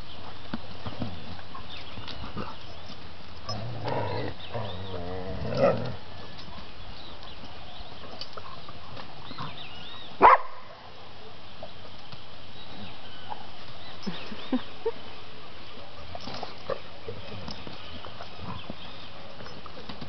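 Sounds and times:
dog growling: 3.5 - 6.0.

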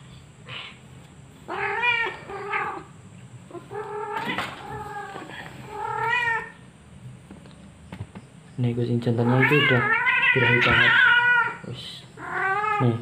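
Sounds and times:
cat yowling: 1.5 - 2.9, 3.5 - 6.6, 9.2 - 13.0.

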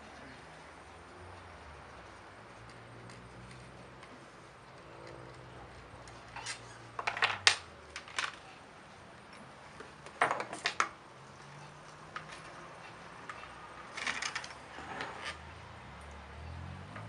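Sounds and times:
plastic parts clicking and clinking: 6.0 - 8.5, 13.2 - 14.7.

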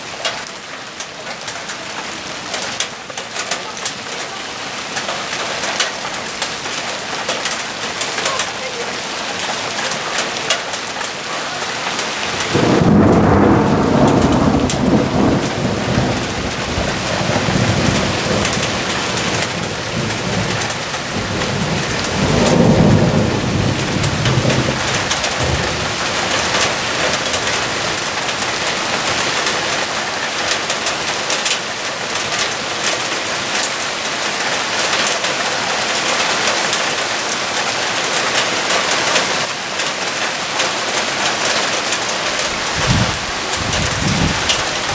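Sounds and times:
heavy rain falling: 0.0 - 44.9
thunder rolling: 11.9 - 29.4, 42.3 - 44.9.

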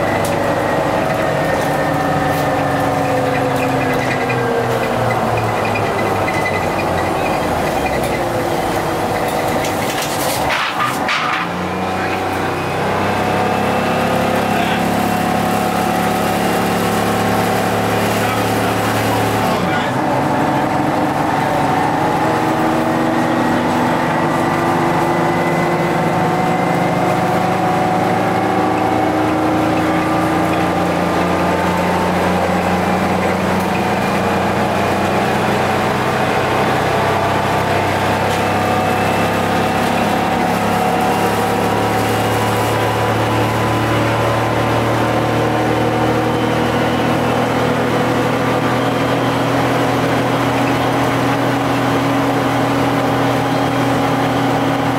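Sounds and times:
bus diesel engine droning: 0.0 - 54.9.

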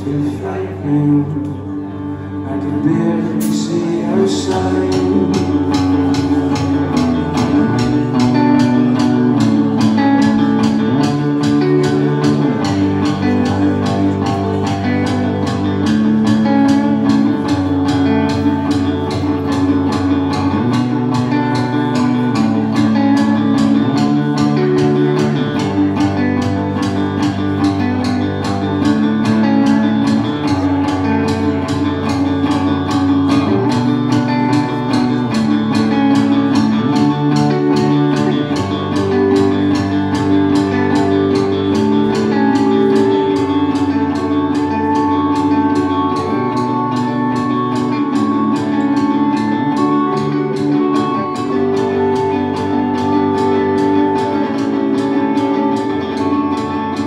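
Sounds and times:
bass guitar: 0.0 - 57.0
electric guitars: 0.0 - 57.0
drum kit steady beat: 3.4 - 57.0.

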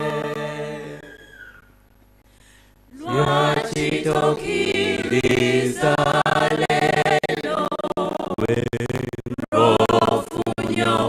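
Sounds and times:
church choir singing: 0.0 - 1.1, 3.0 - 8.3, 9.6 - 11.0.

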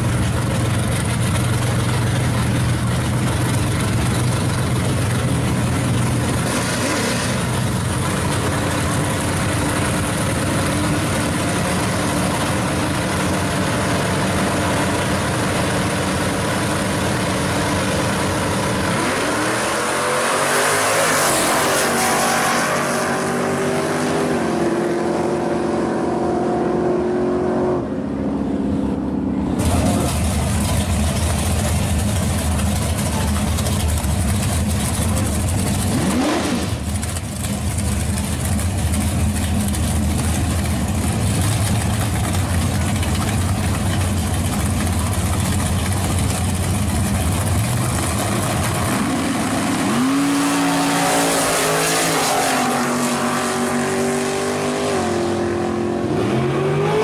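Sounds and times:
loud rough engine idle: 0.0 - 6.6, 7.3 - 18.9, 29.6 - 49.9
race cars at high revs: 6.2 - 30.4, 34.9 - 37.3, 47.6 - 57.0
engines launching: 29.6 - 37.2.

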